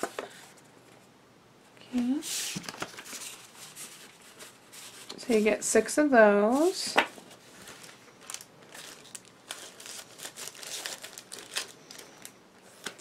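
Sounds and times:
plastic packaging crinkling: 6.6s - 13.0s.

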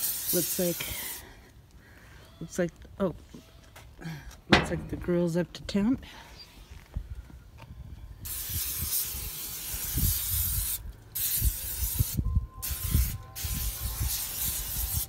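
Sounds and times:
aerosol spray hissing: 0.0s - 1.2s.

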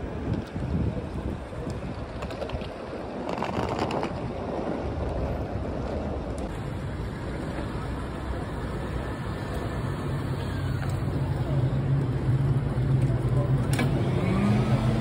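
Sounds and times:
wind on microphone: 0.0s - 6.6s
road traffic: 0.0s - 15.0s.

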